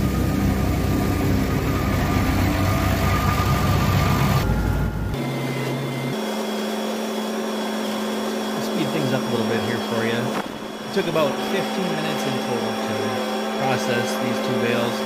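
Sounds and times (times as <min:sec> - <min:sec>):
heavy engine running: 0:00.0 - 0:15.0
steady machine hum: 0:00.0 - 0:15.0.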